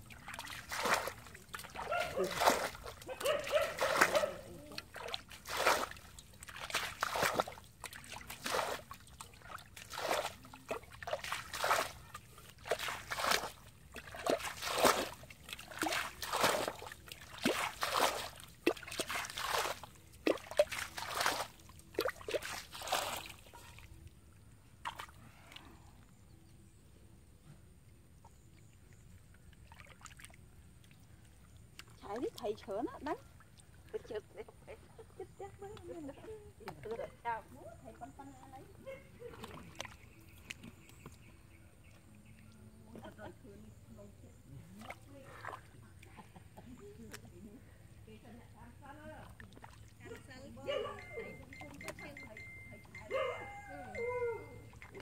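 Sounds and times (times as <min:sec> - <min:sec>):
shallow water splashing: 0:00.0 - 0:24.0, 0:24.7 - 0:25.6, 0:28.3 - 0:34.5, 0:37.9 - 0:41.3, 0:44.7 - 0:46.2, 0:48.8 - 0:55.0.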